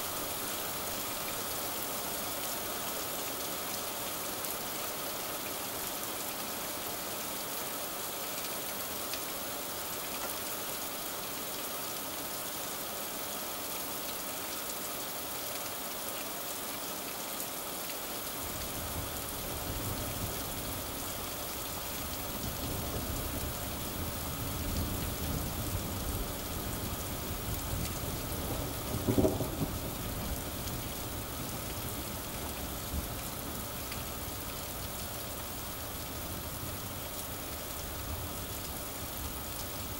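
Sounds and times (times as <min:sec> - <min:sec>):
steady rain hissing: 0:00.0 - 0:39.9
thunder rumbling: 0:22.4 - 0:31.6.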